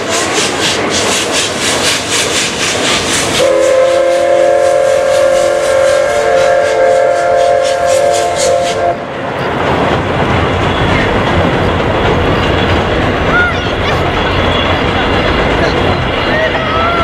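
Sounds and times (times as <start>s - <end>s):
steam locomotive chuffing: 0.0s - 17.0s
long steam whistle: 3.4s - 9.0s.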